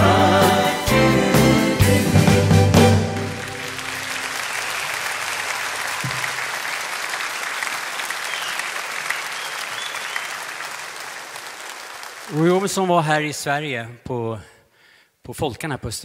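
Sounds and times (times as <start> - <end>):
audience applauding: 2.8 - 12.9.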